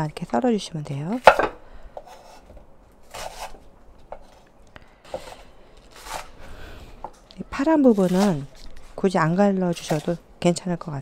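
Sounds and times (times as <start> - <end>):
knife scraping through stalks: 2.0 - 4.5, 5.1 - 6.6, 7.6 - 10.2.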